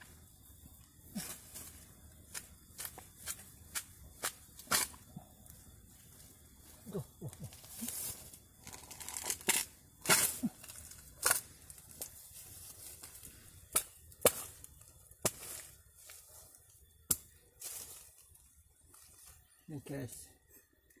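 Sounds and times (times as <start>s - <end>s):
twigs snapping: 7.6s - 12.2s.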